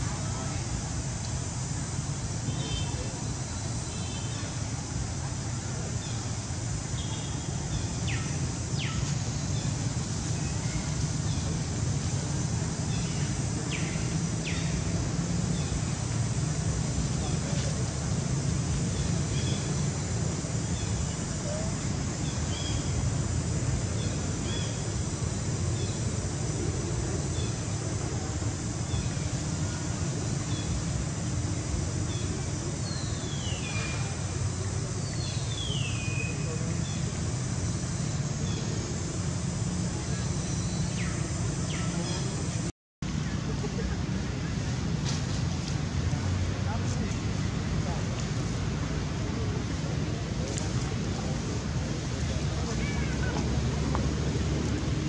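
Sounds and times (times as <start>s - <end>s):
low rumble and hiss: 0.0s - 55.0s
small birds chirping: 6.0s - 11.7s.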